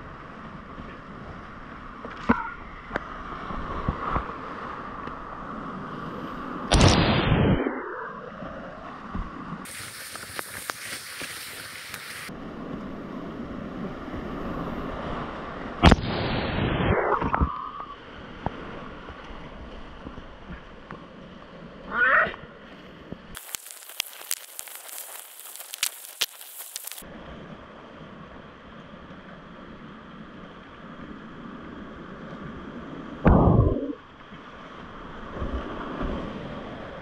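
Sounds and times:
whitewater rushing and splashing: 0:09.6 - 0:12.4, 0:23.4 - 0:27.1.

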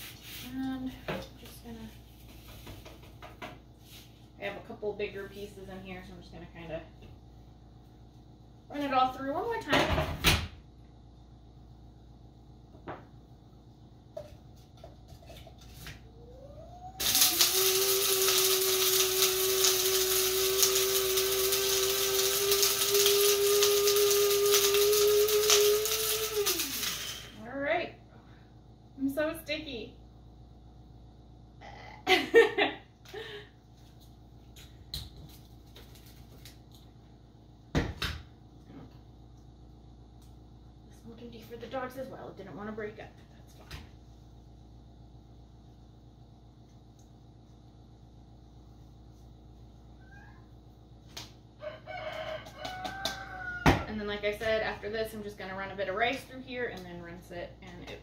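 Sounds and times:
coffee grinder motor running: 0:17.0 - 0:27.4.

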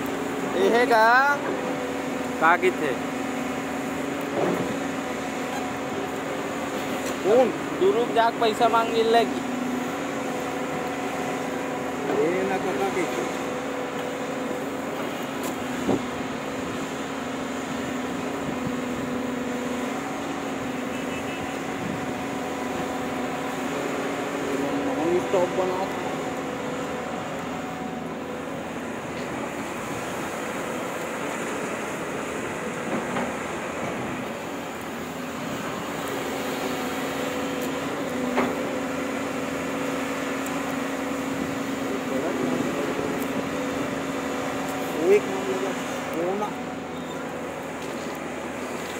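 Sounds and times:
excavator diesel engine drone: 0:00.0 - 0:48.9.

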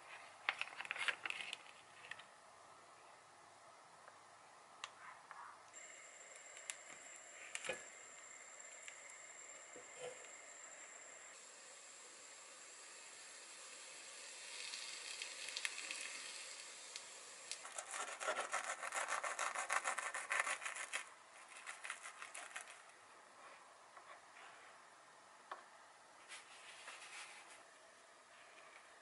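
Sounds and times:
sandwich hissing in a pan: 0:07.0 - 0:20.6
knife sawing through crisp bread: 0:17.7 - 0:21.0.

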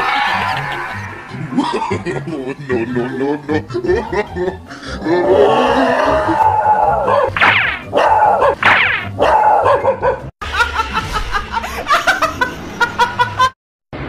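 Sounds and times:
dog barking in high yelps: 0:07.0 - 0:10.2
woman laughing loudly: 0:10.4 - 0:13.5.

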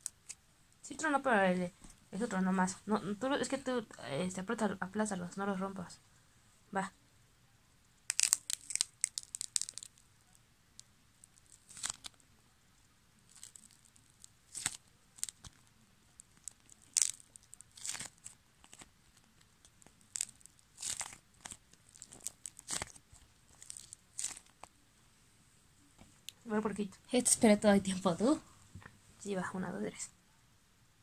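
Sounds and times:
crust crackling under fingers: 0:08.0 - 0:12.4, 0:13.2 - 0:24.8.

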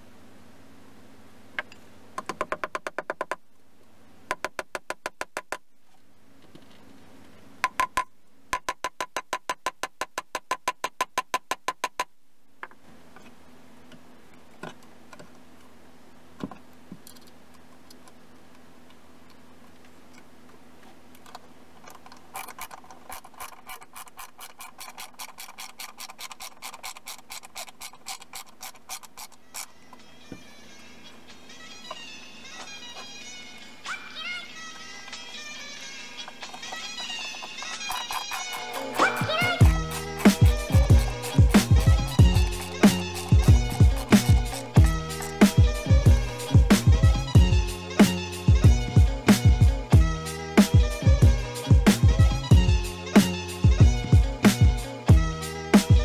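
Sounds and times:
low steady hum: 0:00.0 - 0:02.7, 0:12.1 - 0:56.0
rapid mechanical clicks: 0:21.2 - 0:29.7.

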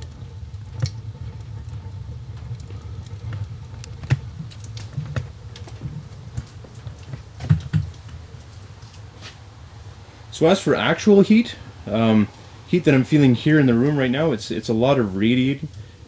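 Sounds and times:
sharp clicks and ticks: 0:00.0 - 0:09.0
oil burner rumbling: 0:00.0 - 0:16.0.

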